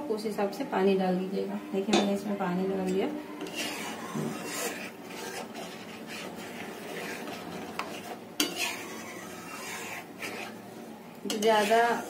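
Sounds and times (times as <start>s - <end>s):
metal spatula scraping in pan: 2.8s - 12.0s.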